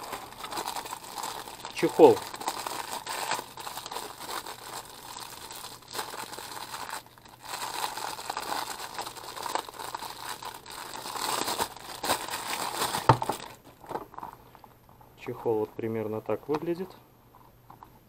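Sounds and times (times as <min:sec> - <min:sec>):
plastic wrapping crinkling: 0:00.0 - 0:14.8.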